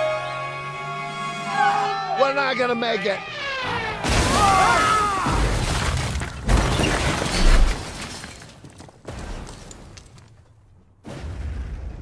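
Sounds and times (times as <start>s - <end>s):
film score: 0.0s - 6.6s
rising and falling cries: 0.2s - 5.5s
vehicle crashing into rock: 4.0s - 8.0s.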